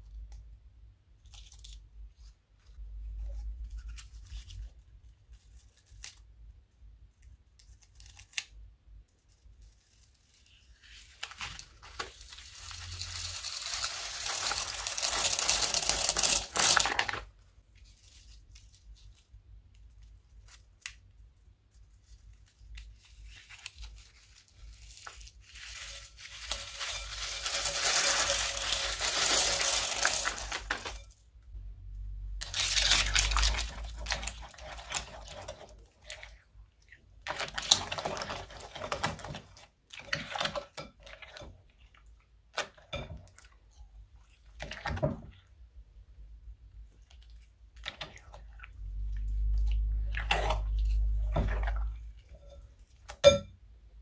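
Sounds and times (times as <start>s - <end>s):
beads pouring onto slime: 12.2s - 17.0s, 24.7s - 31.0s.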